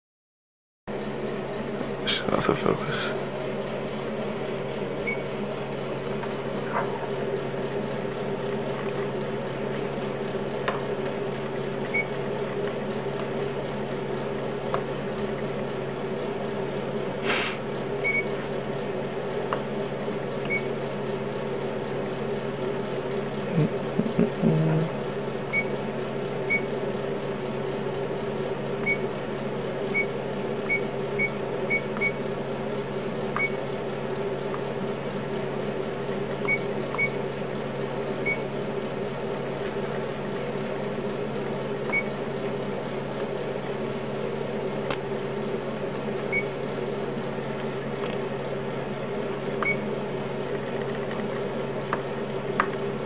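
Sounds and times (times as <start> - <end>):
steady electrical hum: 1.0 - 53.0
electronic key-press beeps: 18.0 - 18.3, 30.7 - 32.2, 33.4 - 33.6, 36.5 - 37.2, 49.6 - 49.8.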